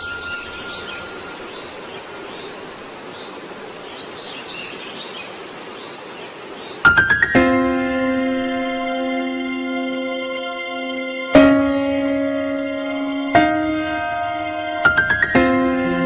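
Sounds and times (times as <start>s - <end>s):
faint high chirps: 0.0s - 2.6s
steady ambient hiss: 0.0s - 16.0s
struck notes and held chord: 6.9s - 16.0s.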